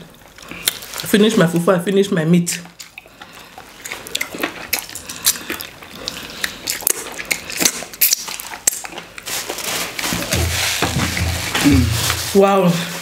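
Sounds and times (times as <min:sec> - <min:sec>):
paper tissue rustling: 0:09.2 - 0:13.0.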